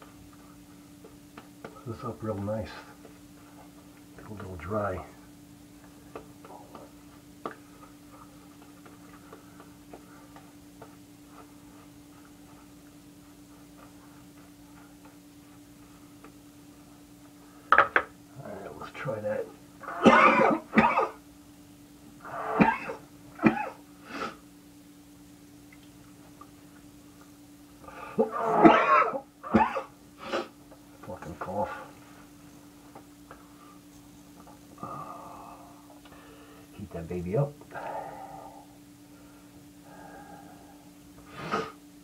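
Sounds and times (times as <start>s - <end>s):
faint steady hum: 0.0s - 42.0s
man coughing: 19.9s - 21.2s, 22.4s - 23.8s, 28.5s - 29.9s
low hum: 37.6s - 41.3s.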